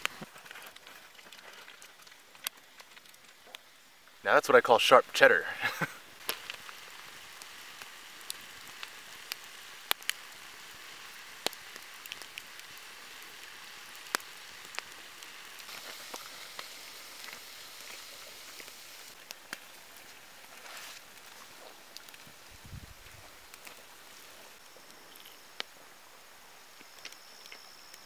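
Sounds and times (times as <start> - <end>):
campfire crackling: 0.0 - 28.0.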